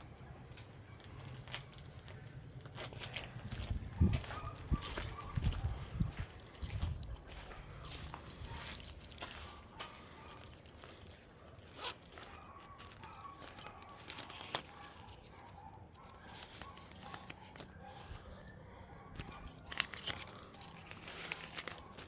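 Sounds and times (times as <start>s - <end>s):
small objects clicking and rattling: 16.1s - 22.0s.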